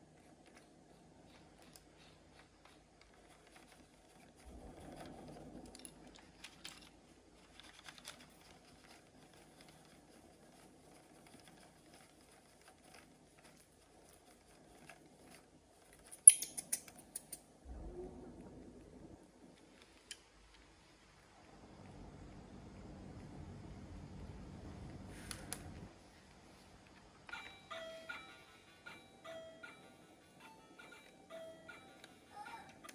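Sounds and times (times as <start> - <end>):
plastic toys clicking and rustling: 0.0 - 17.4, 26.8 - 32.9.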